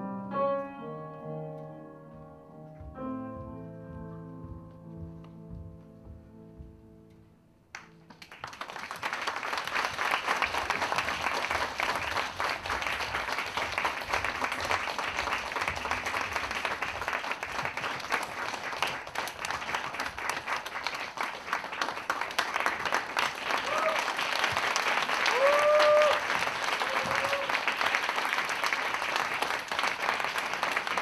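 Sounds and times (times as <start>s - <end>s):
audience applauding: 7.8s - 31.0s.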